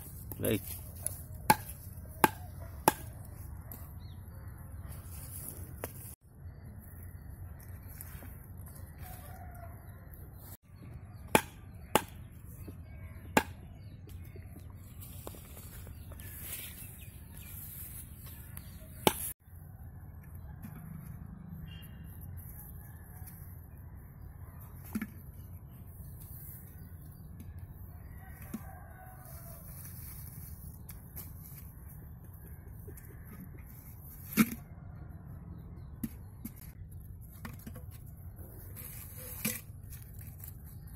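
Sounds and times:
rooster crowing faintly: 0:28.1 - 0:30.0.

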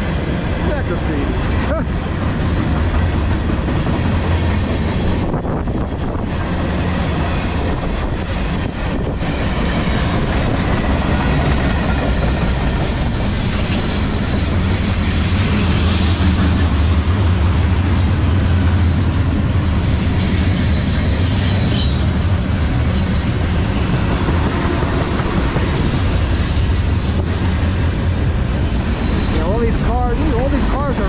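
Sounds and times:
steel wheels rumbling on rail: 0:00.0 - 0:31.0.

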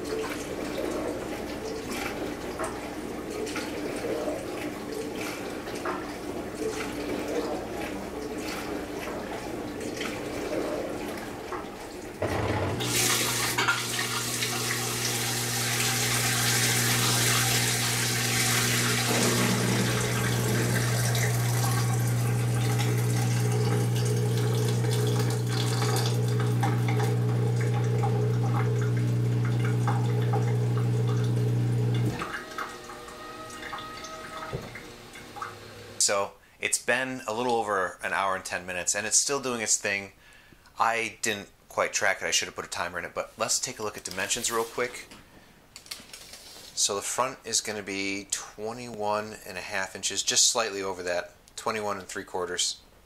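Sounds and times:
water splashing into metal sink: 0:00.0 - 0:36.0
dishwasher drain pump humming: 0:00.0 - 0:36.1.

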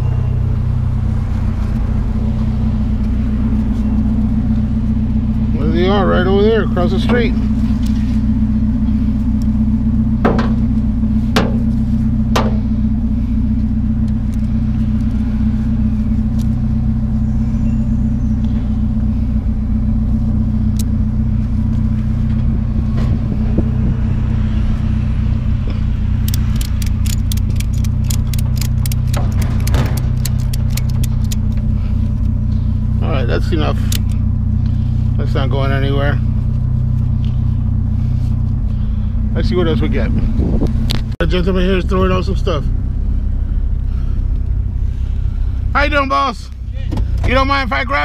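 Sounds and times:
vehicle engine idling: 0:00.0 - 0:48.0
ratchet strap clicking: 0:26.2 - 0:31.6.

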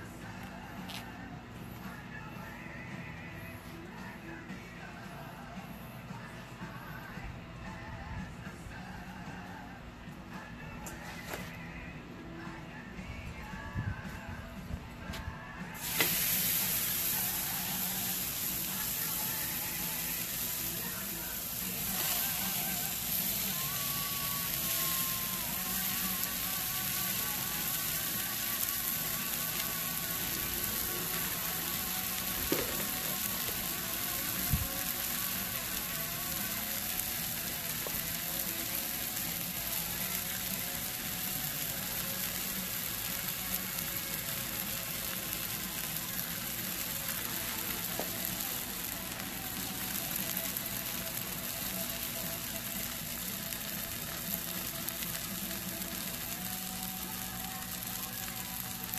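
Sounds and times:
steaks sizzling on griddle: 0:15.4 - 0:58.9.

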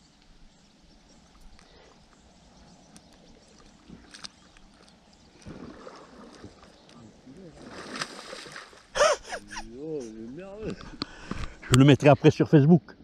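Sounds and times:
water lapping against float: 0:01.6 - 0:09.0
small water splashes: 0:02.9 - 0:09.0.

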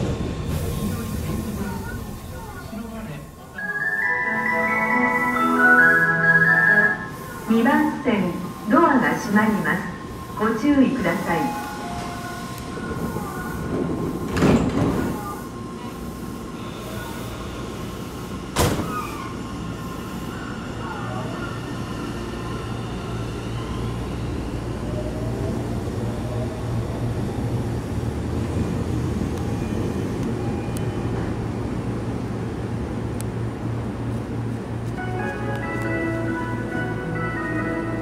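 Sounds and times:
train doors sliding shut: 0:00.0 - 0:02.9, 0:07.0 - 0:20.3
train braking to a stop: 0:00.0 - 0:32.2.

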